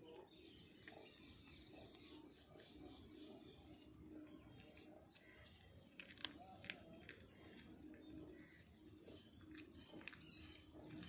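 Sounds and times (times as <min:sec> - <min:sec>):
cat chewing bone: 0:04.2 - 0:08.2, 0:08.9 - 0:11.0
sharp bone crunches: 0:05.2 - 0:07.8.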